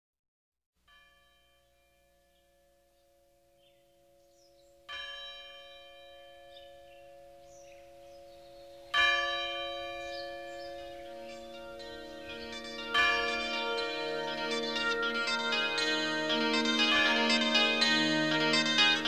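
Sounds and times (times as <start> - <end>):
bell ringing: 4.9 - 19.0.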